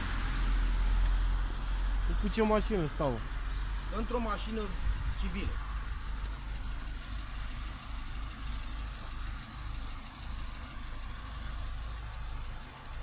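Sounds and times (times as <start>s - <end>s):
low outdoor rumble: 0.0s - 13.0s
small bird chirping: 8.7s - 12.9s.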